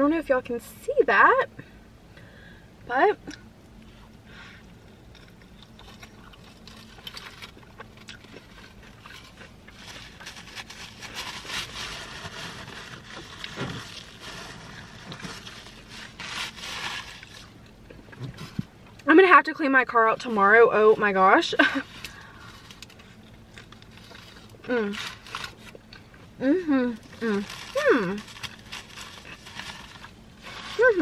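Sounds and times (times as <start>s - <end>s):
chewing food: 4.9s - 10.3s.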